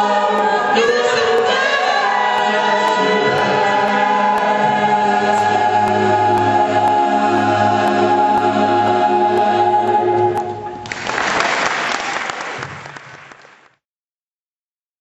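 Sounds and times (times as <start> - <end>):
male vocal ensemble chord: 0.0 - 10.4
audience applause: 10.8 - 13.8.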